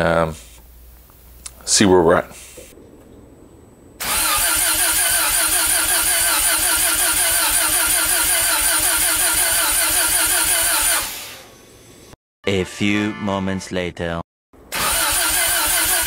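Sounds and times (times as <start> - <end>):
starter cranking engine: 4.0 - 11.3, 14.7 - 16.0.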